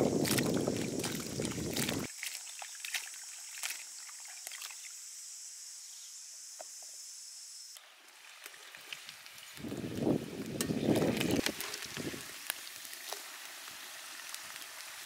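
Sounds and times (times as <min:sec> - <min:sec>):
water dripping and splashing: 0:00.0 - 0:04.9, 0:08.1 - 0:15.0
steady high hiss: 0:03.1 - 0:08.2.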